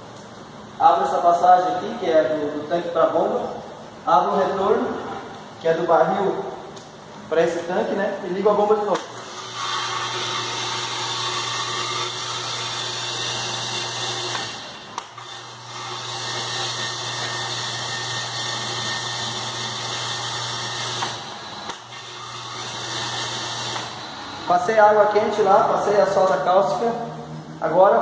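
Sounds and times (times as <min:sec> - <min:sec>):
electric pump humming: 0:00.0 - 0:28.0.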